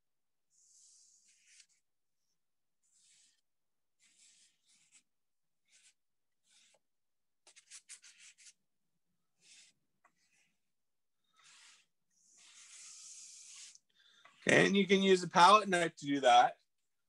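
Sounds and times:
palette knife scraping canvas: 0.4 - 14.9.

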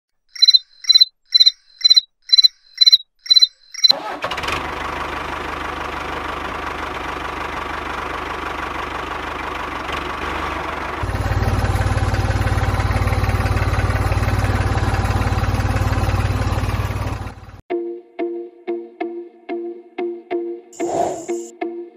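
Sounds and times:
short high beeps: 0.3 - 4.0
tractor engine running: 0.4 - 17.6.

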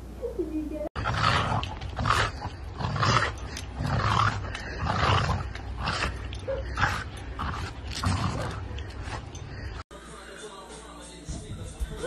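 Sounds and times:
dog growling: 1.0 - 9.8.

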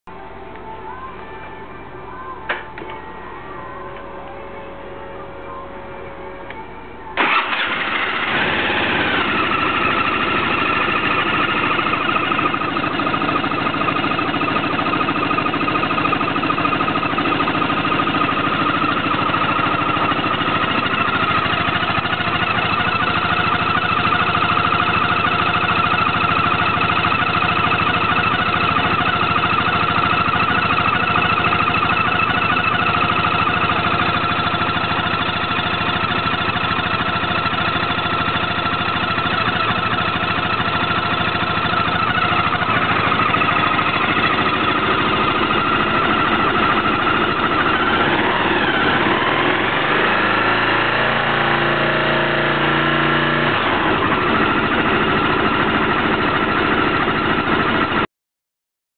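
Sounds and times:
abnormal engine noise: 1.8 - 58.1
scooter engine idling: 7.2 - 58.1.

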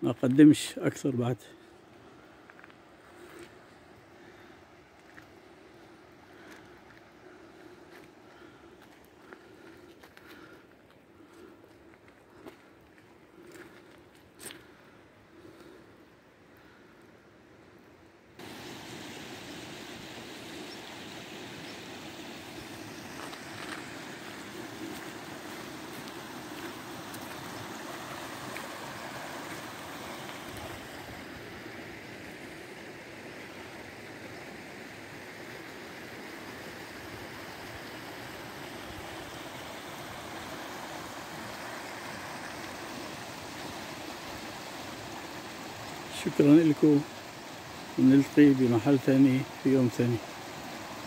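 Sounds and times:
flood water rushing: 18.4 - 51.0.

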